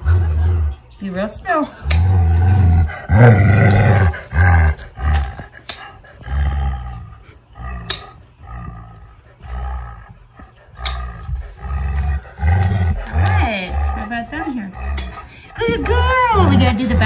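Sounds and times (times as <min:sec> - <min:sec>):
dog growling: 0:01.7 - 0:17.0
nail clippers snipping: 0:05.6 - 0:05.9, 0:07.8 - 0:08.1, 0:10.8 - 0:11.1.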